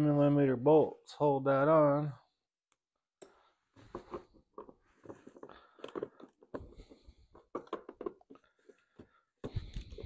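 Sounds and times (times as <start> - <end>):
parts being handled: 3.8 - 10.0.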